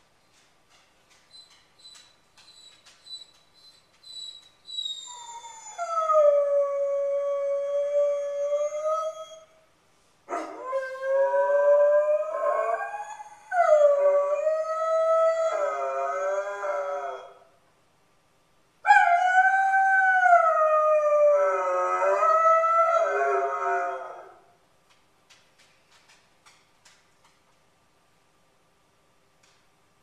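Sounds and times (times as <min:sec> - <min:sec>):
dog howling: 0:10.3 - 0:17.5, 0:18.9 - 0:24.4.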